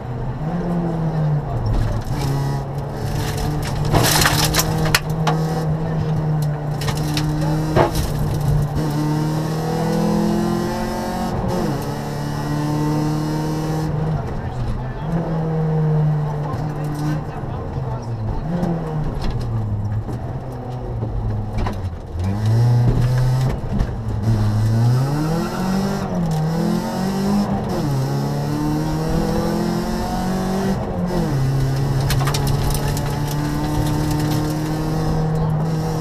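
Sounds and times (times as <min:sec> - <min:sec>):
car engine accelerating: 0:00.0 - 0:36.0.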